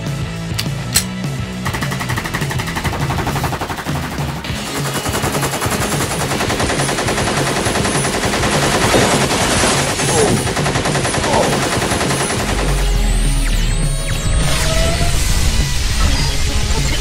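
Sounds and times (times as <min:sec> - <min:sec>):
machine-gun fire: 0:01.0 - 0:12.7.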